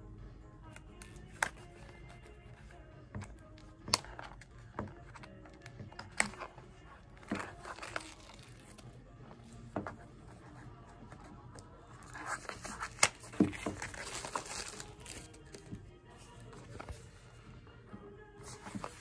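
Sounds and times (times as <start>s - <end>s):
plastic film cracks: 7.2s - 8.8s, 12.4s - 15.6s
shrink-wrap crinkling and tearing: 7.2s - 8.8s, 12.4s - 15.5s.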